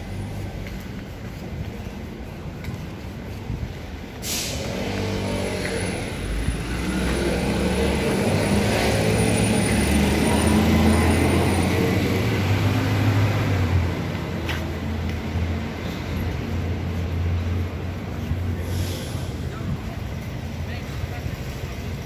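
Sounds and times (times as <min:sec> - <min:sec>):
short hiss: 0:04.2 - 0:04.6.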